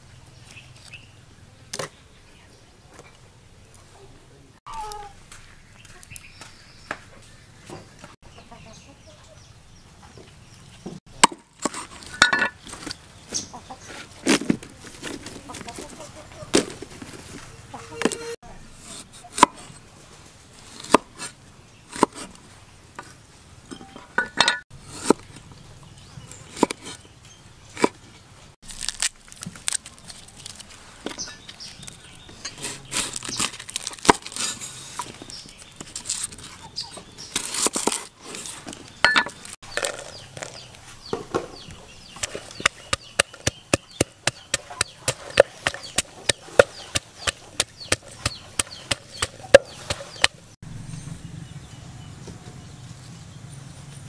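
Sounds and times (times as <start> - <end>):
cleaver chopping on wooden board: 42.2 - 50.4
pestle pounding in wooden mortar: 42.2 - 50.4.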